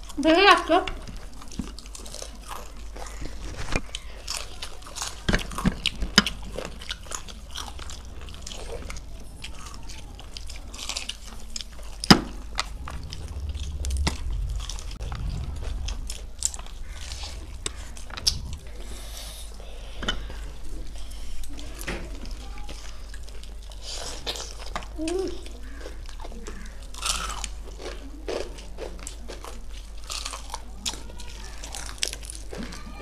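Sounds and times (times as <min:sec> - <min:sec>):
crunching bites of fried chicken: 0:25.6 - 0:32.9.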